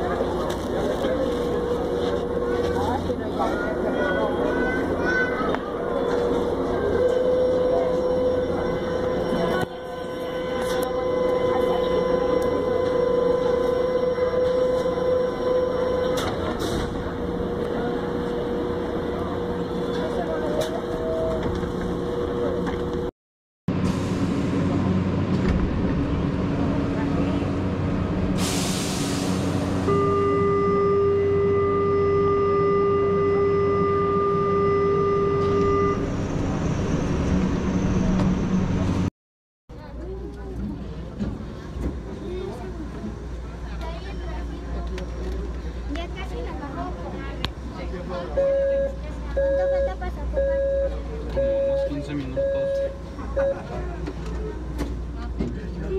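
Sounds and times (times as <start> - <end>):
train rumbling: 0.0 - 23.1, 23.7 - 39.1
door-closing warning tone: 6.0 - 17.0, 29.9 - 36.4, 48.4 - 53.7.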